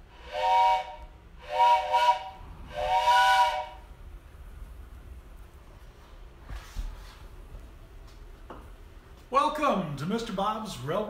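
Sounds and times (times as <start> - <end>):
train whistle blasts: 0.1 - 3.9.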